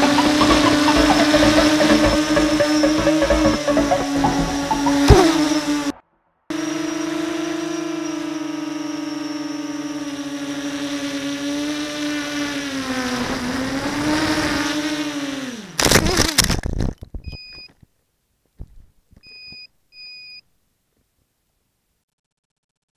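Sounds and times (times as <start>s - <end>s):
electric motors whining: 0.0s - 5.9s, 6.5s - 16.7s
propellers clattering through branches: 6.7s - 16.7s.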